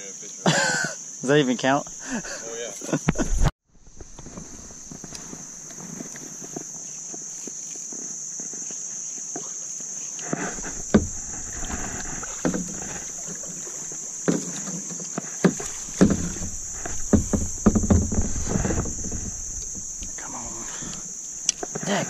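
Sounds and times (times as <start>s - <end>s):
paddle strokes splashing: 3.8s - 6.7s, 10.2s - 22.0s
sharp knocks: 10.4s - 14.4s, 15.5s - 21.8s.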